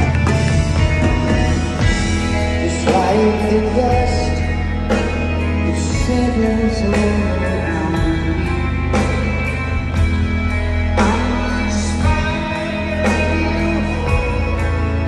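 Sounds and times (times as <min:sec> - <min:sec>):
live rock band playing: 0:00.0 - 0:15.0
man singing into microphone: 0:02.6 - 0:04.7, 0:05.6 - 0:09.2, 0:11.0 - 0:15.0.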